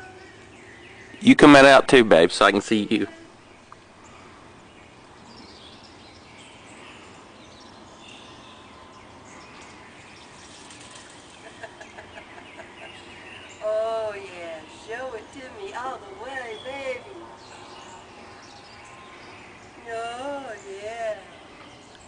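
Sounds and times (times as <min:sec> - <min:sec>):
steady background hiss: 0:00.0 - 0:22.0
feathers rustling: 0:10.3 - 0:11.8.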